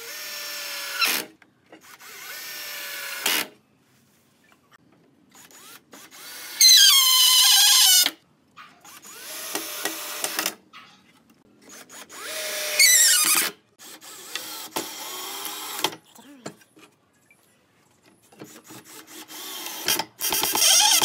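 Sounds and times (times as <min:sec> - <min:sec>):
cordless drill whining into wood: 0:00.0 - 0:03.5, 0:05.3 - 0:08.2, 0:08.8 - 0:10.6, 0:11.6 - 0:15.9, 0:18.5 - 0:21.0.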